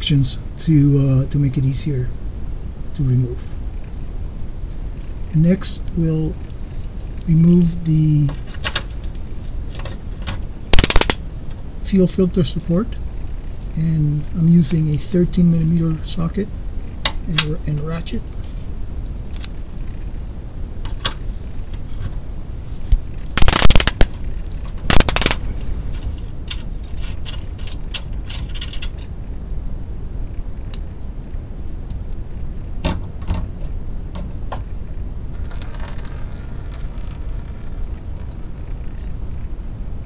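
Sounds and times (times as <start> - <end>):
hand ratchet clicking: 10.8 - 11.2, 23.4 - 24.2, 24.9 - 25.4.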